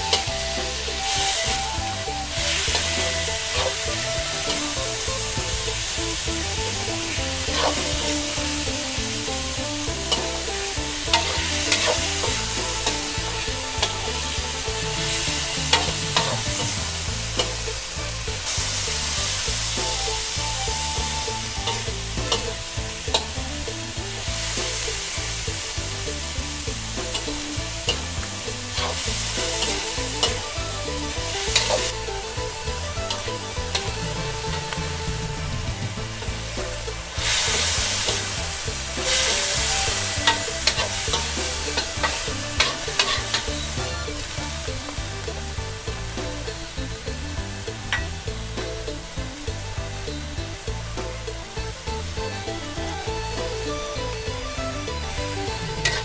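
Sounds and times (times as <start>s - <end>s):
meat sizzling in a wok: 0.0s - 56.0s
metal spatula scraping pan: 36.6s - 44.3s.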